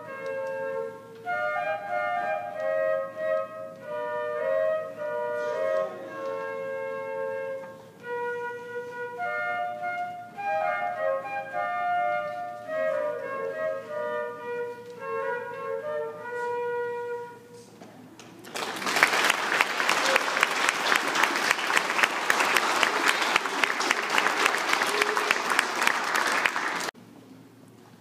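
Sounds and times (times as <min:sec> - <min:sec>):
flutes playing a melody: 0:00.0 - 0:17.8
audience applause: 0:18.4 - 0:27.0.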